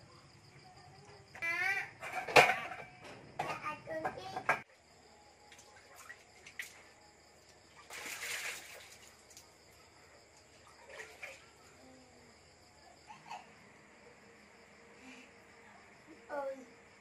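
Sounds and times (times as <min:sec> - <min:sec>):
water splashing into metal bowl: 0:05.5 - 0:06.9, 0:07.7 - 0:09.4, 0:10.6 - 0:11.6.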